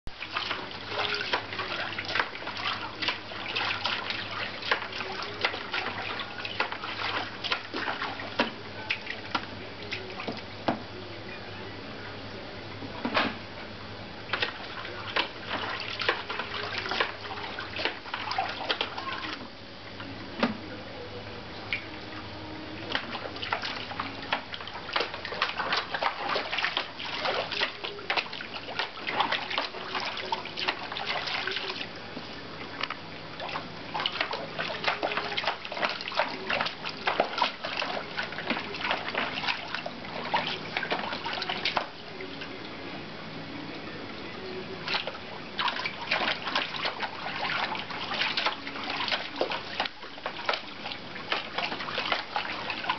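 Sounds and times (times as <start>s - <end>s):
dog splashing in water: 22.9s - 31.8s, 33.4s - 42.0s, 44.8s - 52.9s.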